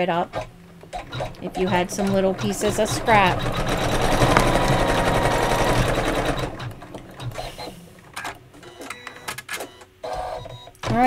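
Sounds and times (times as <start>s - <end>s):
embroidery machine stitching: 0.3s - 8.4s.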